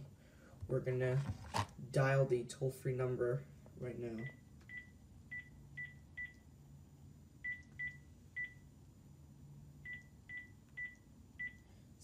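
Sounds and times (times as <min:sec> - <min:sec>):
phone keypad beeps: 0:07.4 - 0:08.6, 0:09.9 - 0:11.7.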